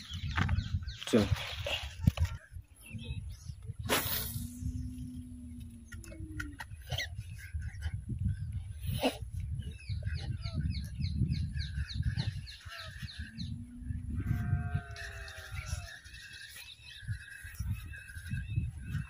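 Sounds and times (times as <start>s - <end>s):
wind rumble on microphone: 0.0s - 19.0s
bird chirping: 9.5s - 19.0s.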